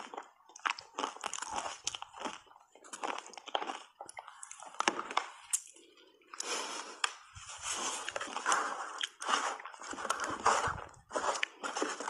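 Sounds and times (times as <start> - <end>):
shaved ice crunching when chewed: 0.0 - 5.7, 8.0 - 12.0.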